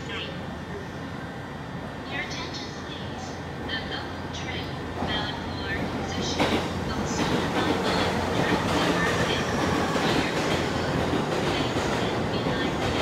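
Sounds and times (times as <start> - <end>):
electric train wheels clattering: 4.6 - 13.0.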